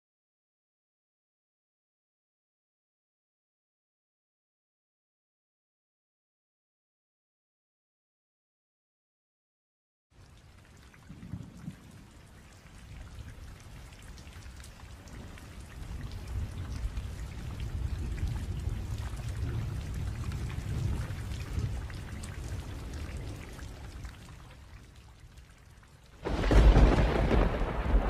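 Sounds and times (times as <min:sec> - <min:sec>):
rain patter: 0:10.1 - 0:28.0
thunder rumble: 0:11.0 - 0:12.2, 0:15.0 - 0:24.2, 0:26.2 - 0:28.0.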